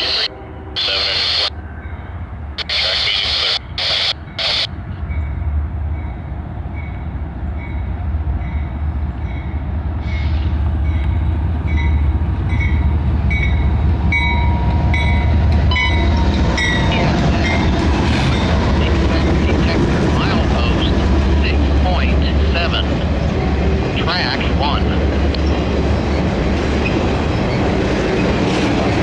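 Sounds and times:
diesel locomotive engines rumbling: 0.0s - 29.0s.

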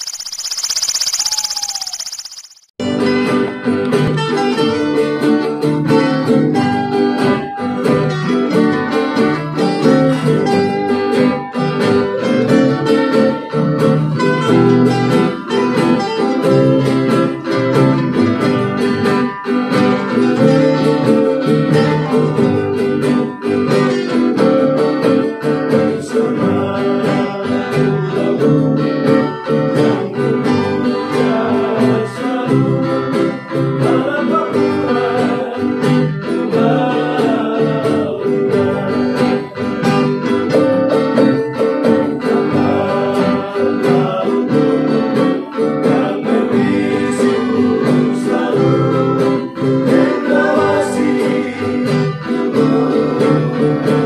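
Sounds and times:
strummed acoustic guitars: 2.8s - 54.0s
ukuleles strumming: 3.0s - 54.0s
voices singing: 25.7s - 39.6s, 41.8s - 54.0s.

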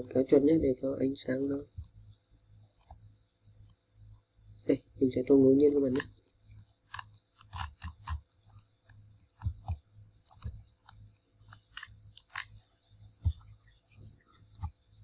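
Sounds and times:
faint steady hum: 0.0s - 15.0s
computer mouse clicks: 1.4s - 2.2s, 2.8s - 4.0s, 5.6s - 15.0s.

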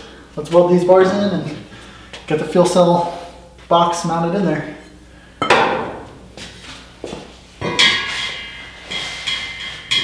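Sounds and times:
sharp metallic clanks: 7.6s - 10.0s.

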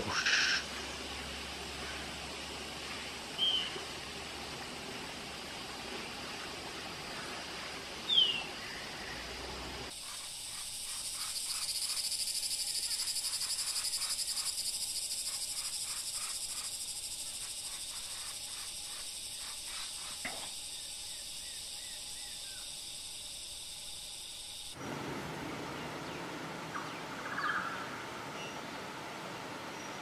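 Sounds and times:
hissy background: 0.0s - 30.0s
pulsing high-pitched insect buzz: 9.9s - 24.8s.

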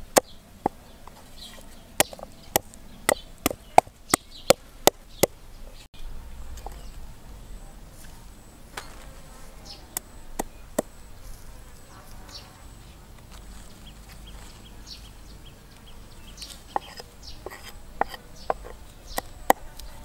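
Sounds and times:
cleaver chopping on wooden block: 2.0s - 5.3s, 16.7s - 19.7s
faint insect buzzing: 8.8s - 14.5s.

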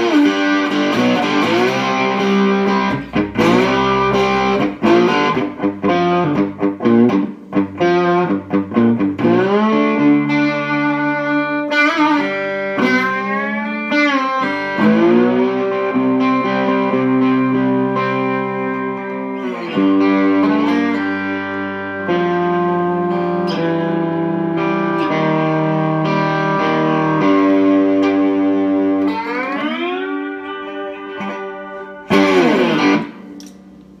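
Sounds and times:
slide guitar playing: 0.0s - 34.0s.

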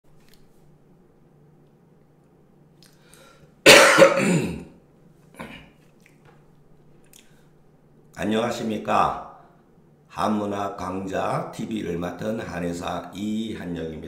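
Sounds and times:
man clearing his throat: 3.6s - 5.8s.

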